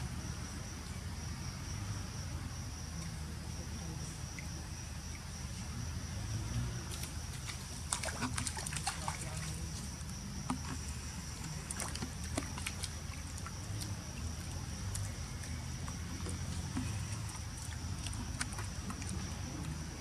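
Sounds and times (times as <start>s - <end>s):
high drone of insects: 0.0s - 20.0s
monkeys splashing through puddle: 6.5s - 20.0s.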